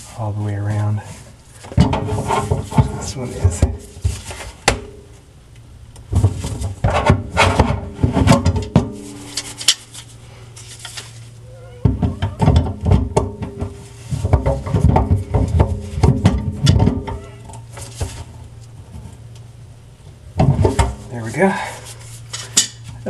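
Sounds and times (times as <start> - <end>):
hands rubbing and scraping drain parts: 6.2 - 12.6.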